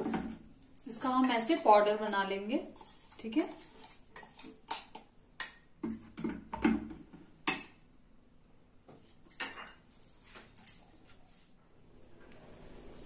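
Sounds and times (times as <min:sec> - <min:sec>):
metal spoon scraping steel jar: 0:02.8 - 0:04.6.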